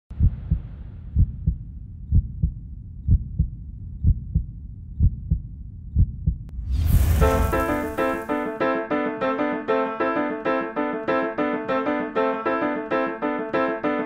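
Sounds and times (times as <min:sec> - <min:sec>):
heartbeat thumps: 0:00.1 - 0:07.5
rising whoosh: 0:06.5 - 0:08.5.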